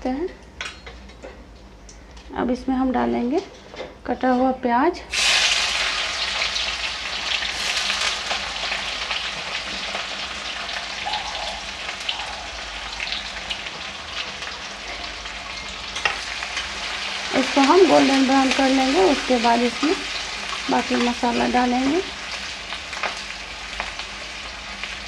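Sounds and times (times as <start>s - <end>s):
onion frying in hot oil: 5.1s - 25.0s.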